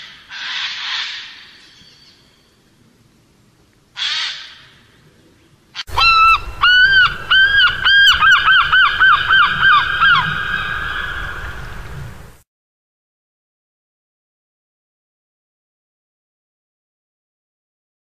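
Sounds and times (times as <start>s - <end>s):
bird honking call: 5.8s - 11.8s.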